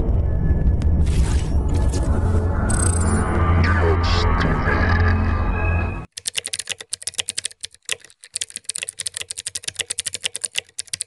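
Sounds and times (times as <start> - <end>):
music: 0.0 - 6.1
computer keyboard typing: 6.1 - 11.0.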